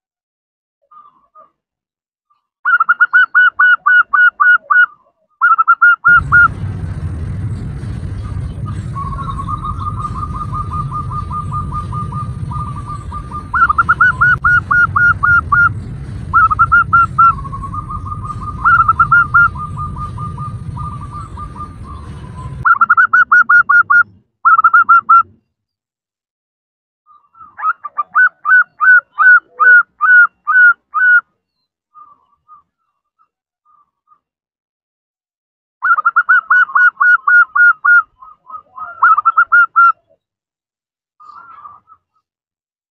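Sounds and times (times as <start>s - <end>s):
dove calling with rolling trill: 2.7s - 7.0s, 7.7s - 25.4s, 27.1s - 31.2s, 35.8s - 40.2s, 41.2s - 42.2s
low hum: 6.1s - 24.1s.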